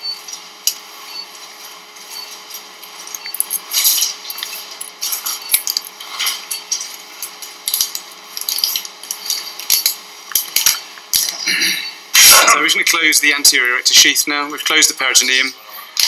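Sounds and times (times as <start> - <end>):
metal instruments clinking: 3.0 - 11.5.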